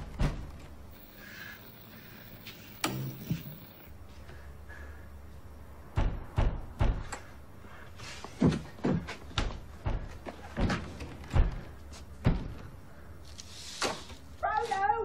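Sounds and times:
heavy thuds and knocks: 0:05.9 - 0:07.1, 0:08.4 - 0:12.7.

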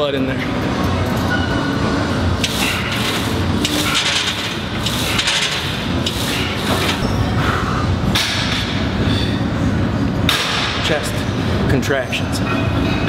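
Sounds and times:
weight machine rubbing noise: 0:02.4 - 0:07.8.

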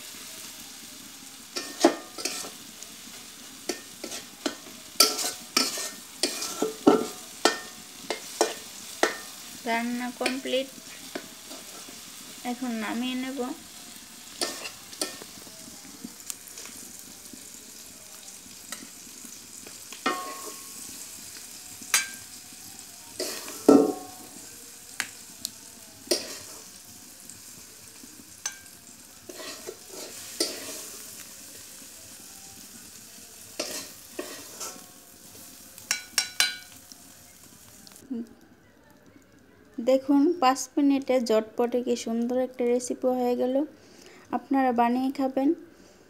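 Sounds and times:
faint sizzle: 0:00.0 - 0:46.0
metal spatula scraping a pan: 0:01.6 - 0:02.6, 0:03.7 - 0:09.5, 0:10.2 - 0:12.3, 0:14.2 - 0:15.4, 0:20.0 - 0:21.0, 0:23.2 - 0:24.3, 0:26.1 - 0:26.8, 0:28.4 - 0:31.1, 0:33.6 - 0:34.9.

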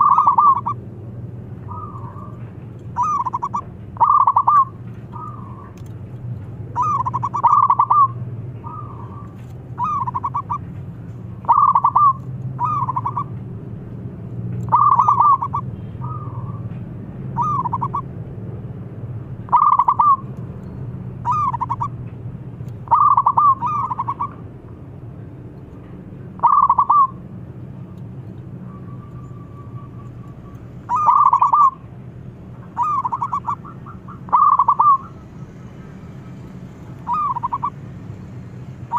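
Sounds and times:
dove cooing: 0:00.0 - 0:00.8, 0:01.6 - 0:05.8, 0:06.7 - 0:10.7, 0:11.4 - 0:13.3, 0:14.7 - 0:16.6, 0:17.4 - 0:18.1, 0:19.5 - 0:20.2, 0:21.2 - 0:22.0, 0:22.8 - 0:24.4, 0:26.4 - 0:27.2, 0:29.2 - 0:31.9, 0:32.7 - 0:35.3, 0:37.0 - 0:37.8.

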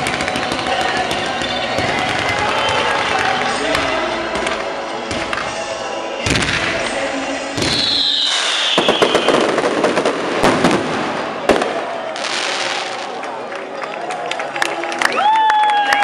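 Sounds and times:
fireworks bangs and crackle: 0:00.0 - 0:13.6
descending firework whistle: 0:07.6 - 0:13.1.

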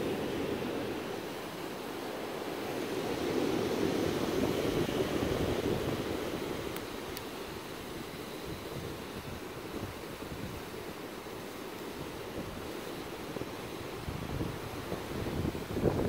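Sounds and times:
ocean surf breaking: 0:00.0 - 0:16.0
wind on microphone: 0:02.2 - 0:07.2, 0:13.3 - 0:16.0.

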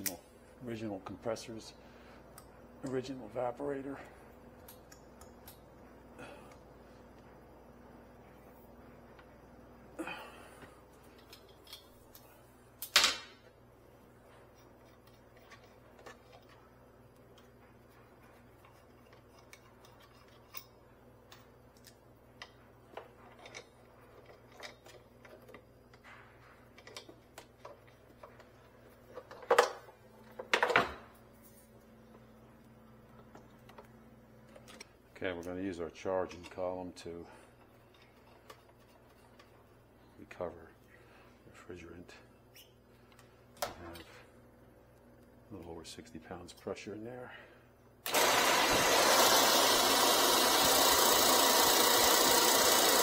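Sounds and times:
faint steady hum: 0:00.0 - 0:48.1
tools clicking and knocking: 0:18.2 - 0:31.0.

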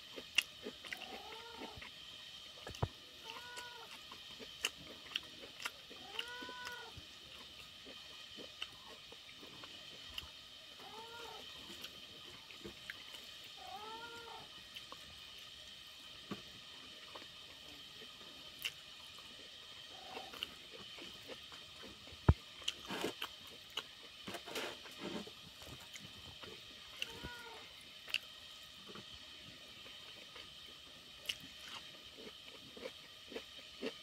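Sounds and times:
cat meowing: 0:01.0 - 0:01.8, 0:03.2 - 0:03.9, 0:06.0 - 0:07.0, 0:10.8 - 0:11.4, 0:13.6 - 0:14.5, 0:27.0 - 0:27.6.

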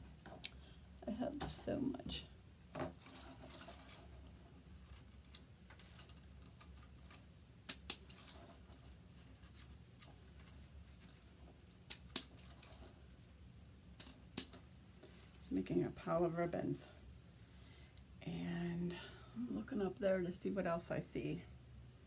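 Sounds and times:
ribbon rustling: 0:02.7 - 0:15.4.

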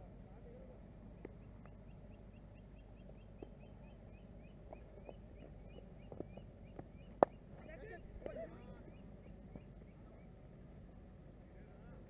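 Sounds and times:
animal chirping: 0:01.2 - 0:10.4.

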